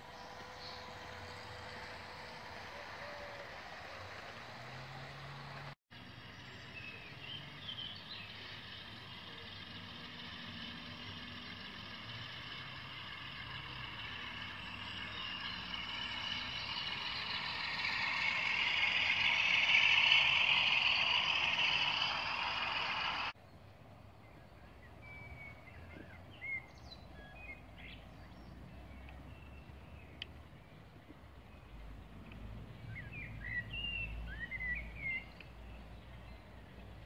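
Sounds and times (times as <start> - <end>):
faint motor whine: 0.0 - 23.4
model train wheels hissing on rail: 7.6 - 23.4.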